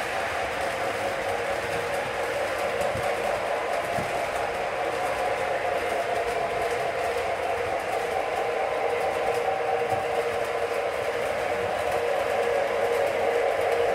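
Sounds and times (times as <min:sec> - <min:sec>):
model train wheels rumbling on rails: 0:00.0 - 0:13.9.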